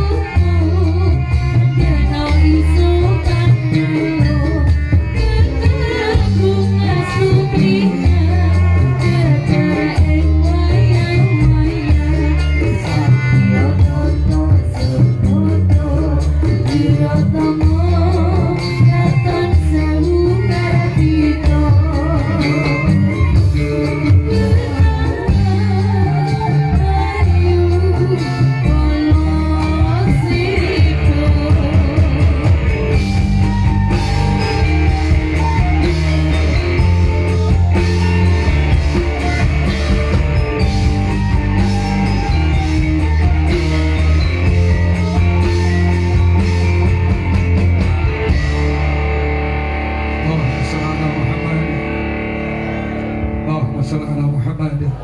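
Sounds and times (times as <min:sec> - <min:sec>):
person singing: 0:00.0 - 0:33.2
drum kit: 0:00.0 - 0:53.8
metallophones playing: 0:00.0 - 0:54.3
bass line: 0:00.0 - 0:55.0.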